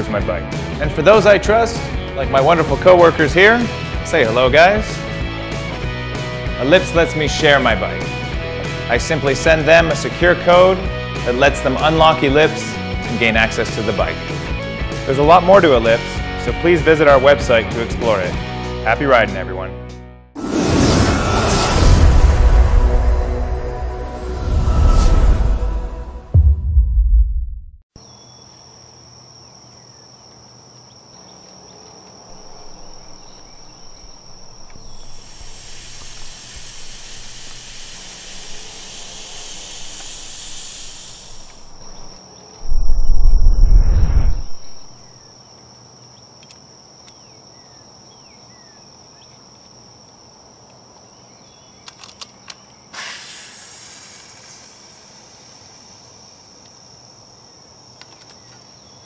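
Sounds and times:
loud low rumble: 20.8s - 27.8s, 42.6s - 45.0s
insects trilling: 28.0s - 43.8s, 44.4s - 59.0s
long hiss: 32.3s - 42.8s, 52.9s - 57.2s.

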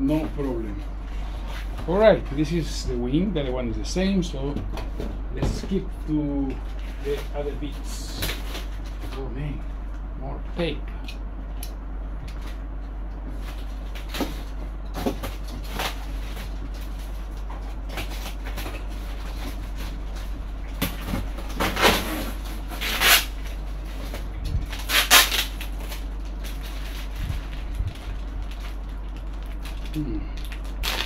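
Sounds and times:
low hum: 0.0s - 31.0s
packaging rustling and scraping: 13.3s - 31.0s.

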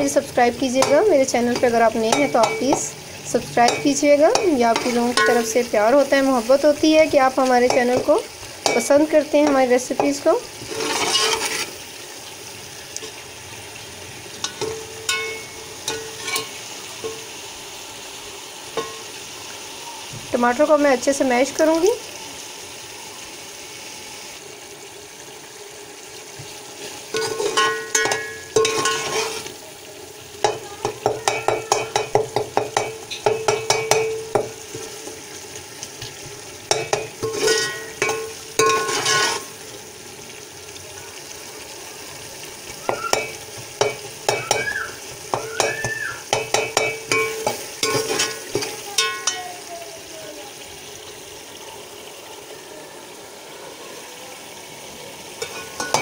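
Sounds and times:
frying sizzle: 0.0s - 56.0s
metal spoon scraping a pot: 7.6s - 11.8s, 14.4s - 16.6s, 27.1s - 29.5s, 36.7s - 39.6s, 46.4s - 49.4s.

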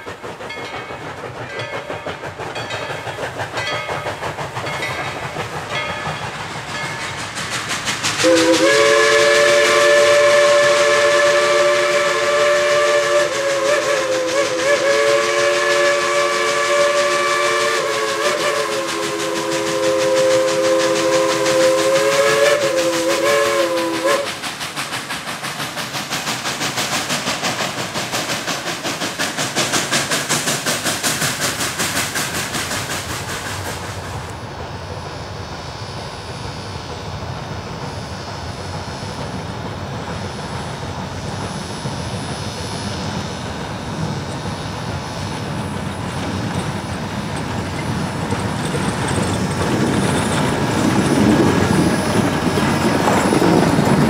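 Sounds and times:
steam locomotive chuffing: 0.0s - 54.0s
chime steam whistle: 8.1s - 24.4s.

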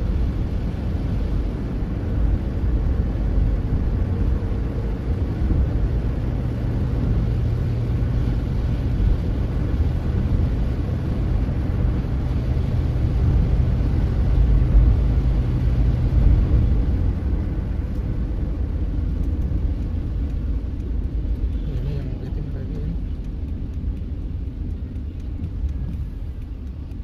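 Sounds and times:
car engine and tyres rumbling: 0.0s - 27.0s
low hum: 0.0s - 27.0s.

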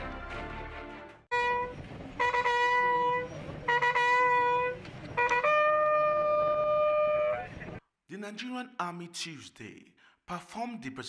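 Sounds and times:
bugle playing: 1.3s - 7.5s.

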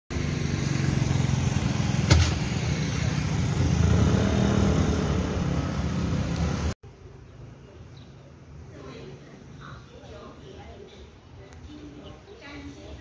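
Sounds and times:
scooters and cars passing: 0.1s - 7.4s.

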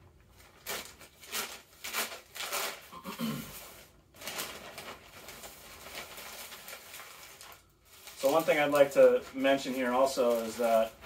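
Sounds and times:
plastic and paper packaging rustling: 0.1s - 11.0s.

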